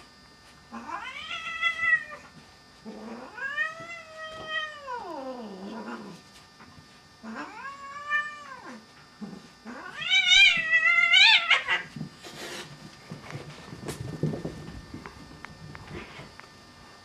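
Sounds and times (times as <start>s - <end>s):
cat yowling: 0.7s - 2.2s, 3.1s - 6.1s, 7.2s - 8.8s.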